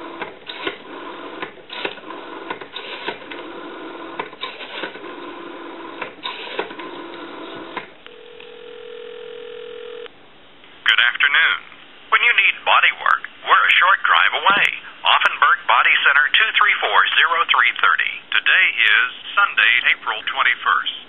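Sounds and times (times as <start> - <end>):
rotary dial whirring clicks: 0.0 - 10.1
telephone line tone: 7.2 - 10.1
telephone ringing tone: 7.2 - 10.1.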